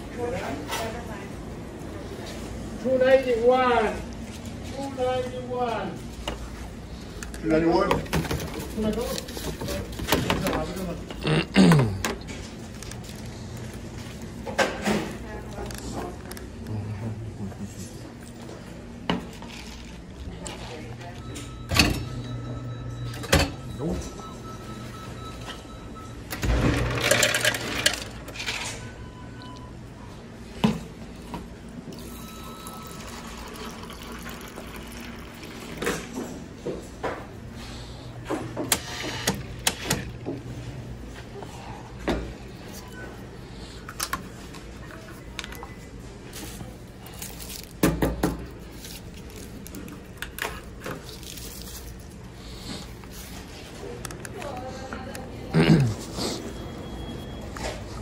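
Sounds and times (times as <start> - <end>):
tea pouring into paper cup: 32.2 - 36.0.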